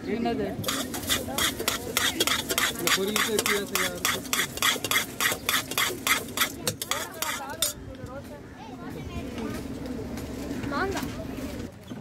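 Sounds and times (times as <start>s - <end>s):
metal spoon scraping steel vessel: 0.6s - 7.8s.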